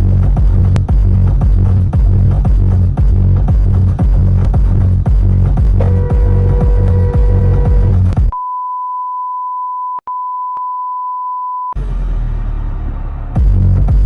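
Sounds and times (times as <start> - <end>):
electronic dance music: 0.0 - 8.3
high pure beep tone: 5.8 - 11.8.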